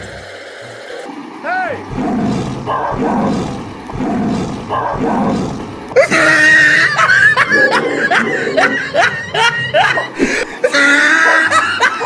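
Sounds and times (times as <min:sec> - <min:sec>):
lion roars: 0:01.8 - 0:09.1.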